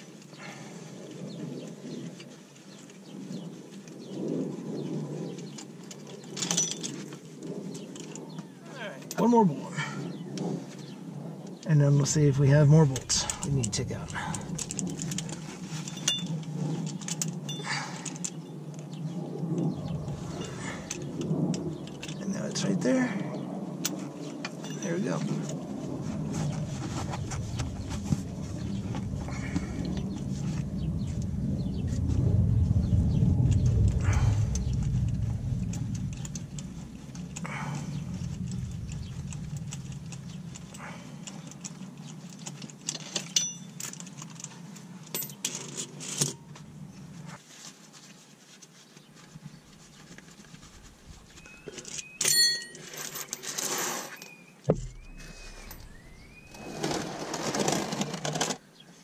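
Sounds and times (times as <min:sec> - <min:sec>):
metal tools and bolts clinking: 0:05.6 - 0:07.1, 0:12.9 - 0:18.4, 0:20.1 - 0:22.3, 0:23.8 - 0:25.6, 0:33.5 - 0:46.5, 0:51.3 - 0:57.7
low rumble: 0:09.8 - 0:42.0, 0:54.7 - 0:57.3.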